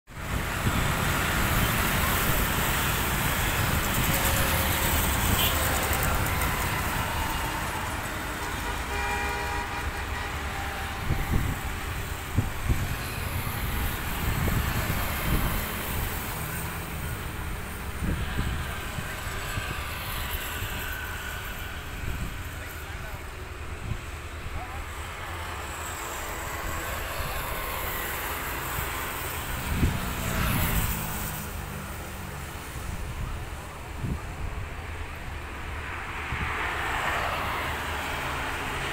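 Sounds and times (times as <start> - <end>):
road traffic rumble: 0.1 - 38.9
vehicle horn: 4.0 - 11.6.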